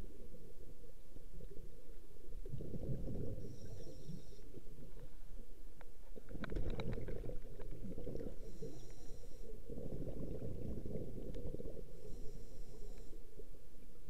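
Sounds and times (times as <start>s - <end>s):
faint high whine: 0.0s - 6.1s, 7.9s - 10.0s, 11.2s - 14.0s
regulator bubbling rumble: 9.6s - 11.9s.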